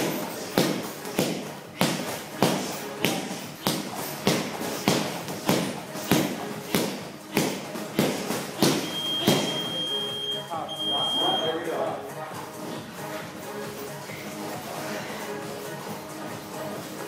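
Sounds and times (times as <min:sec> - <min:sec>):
strikes smacking hand pads: 0:00.6 - 0:09.5
high electronic beep: 0:08.8 - 0:11.7.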